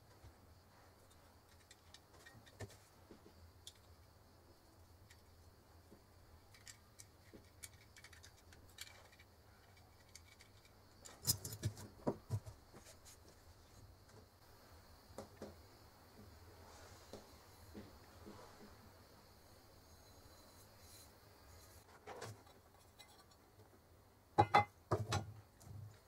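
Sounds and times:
lamp parts knocking on table: 0:24.4 - 0:25.2.

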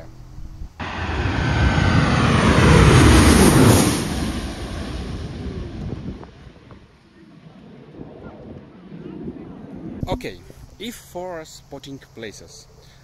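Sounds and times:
jet airliner passing overhead: 0:00.8 - 0:10.5.

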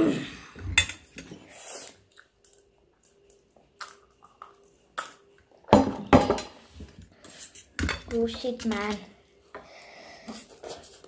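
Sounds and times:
people chewing: 0:00.0 - 0:05.6.

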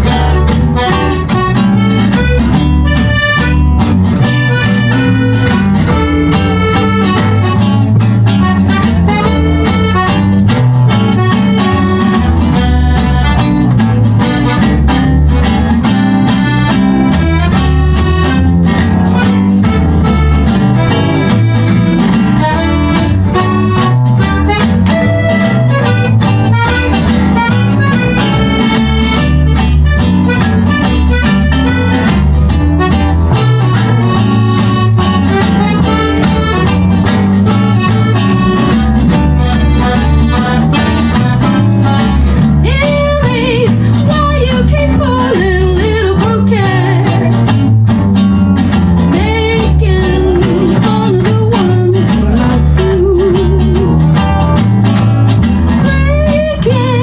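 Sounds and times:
accordion: 0:00.0 - 0:57.0
acoustic guitar: 0:00.0 - 0:57.0
mandolin: 0:00.0 - 0:57.0
upright bass: 0:00.0 - 0:57.0
woman singing: 0:42.6 - 0:47.5, 0:49.1 - 0:54.0, 0:55.8 - 0:57.0.

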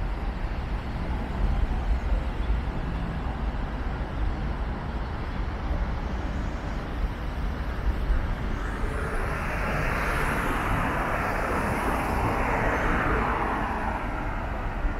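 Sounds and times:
traffic rumble: 0:00.0 - 0:14.9
car passing with tyre hiss: 0:04.5 - 0:14.9.

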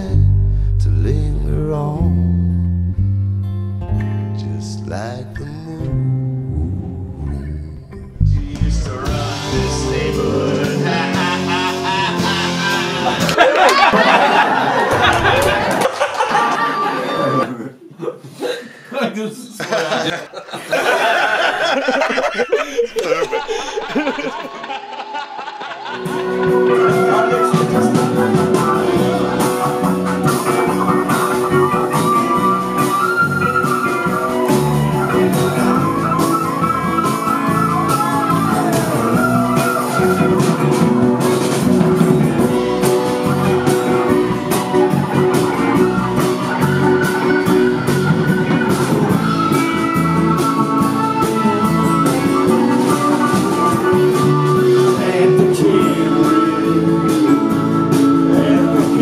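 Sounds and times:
rock band playing: 0:01.6 - 0:17.4, 0:25.8 - 0:59.0.

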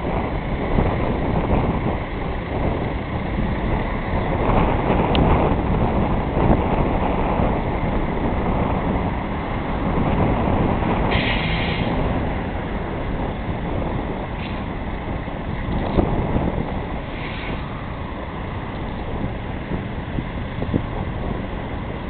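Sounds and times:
truck spraying machine running: 0:00.0 - 0:22.0
high hiss of spray: 0:11.1 - 0:11.9, 0:17.1 - 0:17.7.

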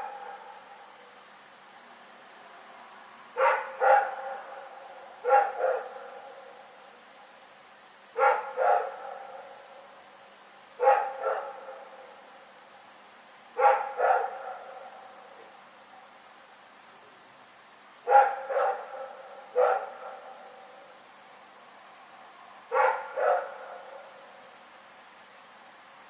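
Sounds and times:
dog barking: 0:03.4 - 0:06.4, 0:08.2 - 0:09.6, 0:10.8 - 0:12.2, 0:13.6 - 0:15.5, 0:18.0 - 0:20.8, 0:22.7 - 0:24.2.

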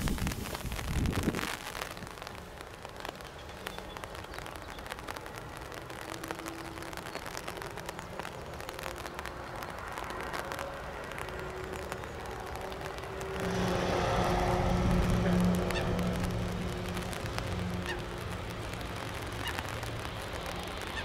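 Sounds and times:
jet engines rumbling: 0:04.9 - 0:21.0
jet engine whine: 0:13.2 - 0:17.7.

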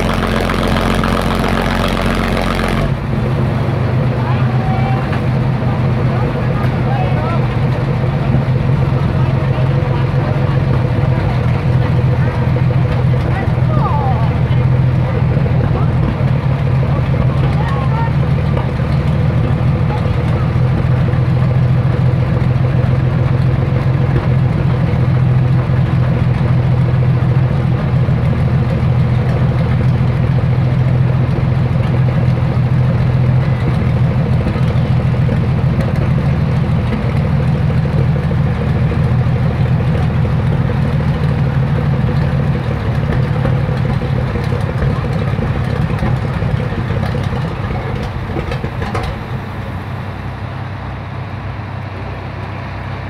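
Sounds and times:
fire engine running under load: 0:00.0 - 0:53.0.

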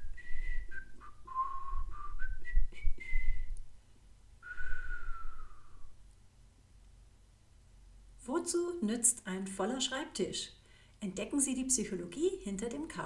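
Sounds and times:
person whistling a tune: 0:00.0 - 0:03.6, 0:04.4 - 0:05.9.

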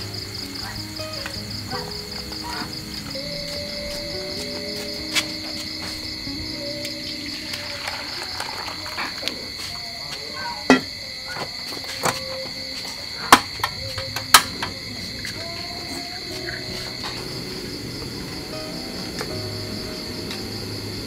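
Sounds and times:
crickets chirping: 0:00.0 - 0:21.0
metal pot and ladle knocking wok: 0:10.7 - 0:10.9.

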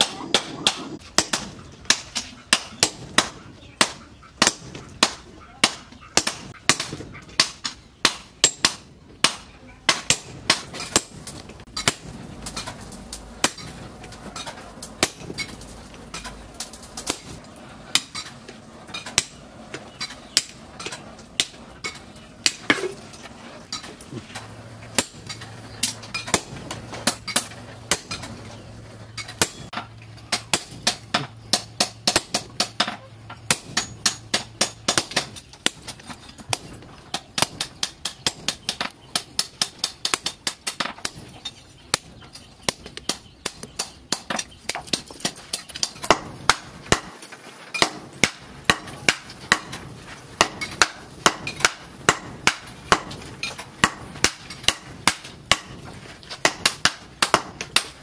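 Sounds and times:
hammer striking chisel on anvil: 0:20.0 - 0:23.0, 0:25.0 - 0:28.3, 0:29.2 - 0:35.9, 0:41.9 - 0:47.2, 0:47.8 - 0:49.8, 0:50.4 - 0:58.0.

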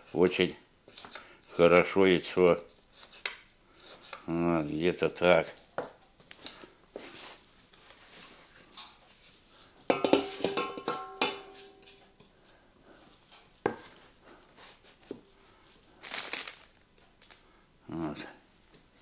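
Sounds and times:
utensils clinking on cookware: 0:09.9 - 0:12.0.

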